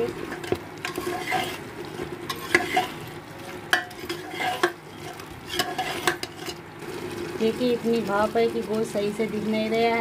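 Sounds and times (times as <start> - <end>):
frying sizzle: 0.0 - 10.0
ladle scraping pot: 0.2 - 6.6.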